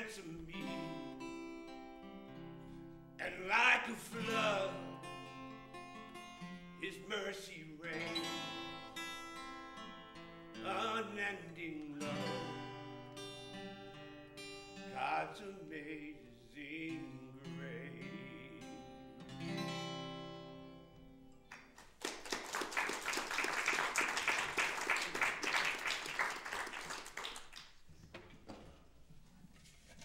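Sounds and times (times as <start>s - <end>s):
acoustic guitar: 0.0s - 22.0s
applause: 21.5s - 27.9s.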